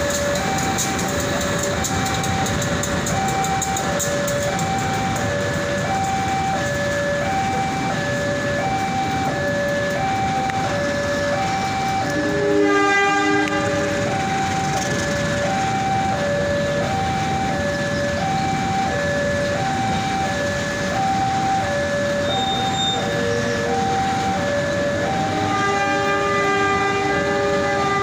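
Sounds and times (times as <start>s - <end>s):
freight train rumbling past: 0.0s - 28.0s
two-tone level-crossing alarm: 0.0s - 28.0s
train horn: 12.0s - 14.1s, 25.2s - 28.0s.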